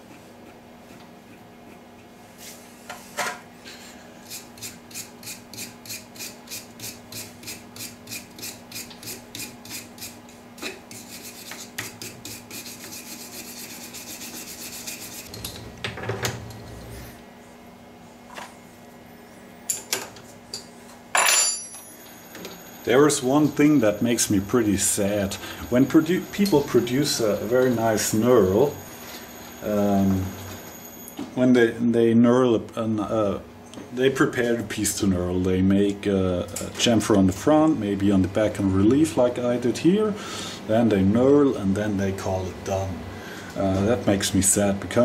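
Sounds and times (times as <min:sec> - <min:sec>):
wire brush scrubbing metal: 0:04.2 - 0:15.3.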